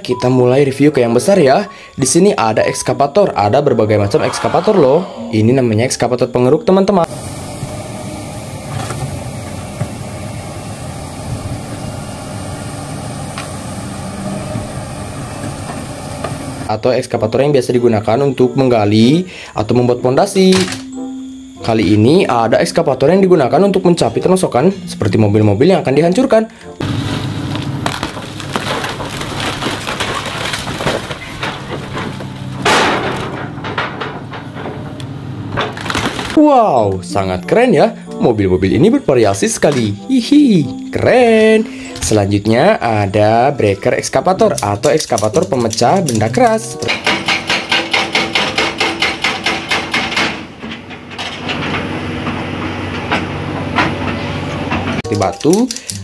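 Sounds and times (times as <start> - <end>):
diesel engine running: 7.1 - 16.7, 26.8 - 36.3, 50.6 - 55.0
excavator diesel engine drone: 7.1 - 16.7
loud crash: 26.8 - 34.8
metal and glass crunching: 26.8 - 34.9, 35.6 - 36.4
hydraulic hammer pounding rock: 46.8 - 55.0.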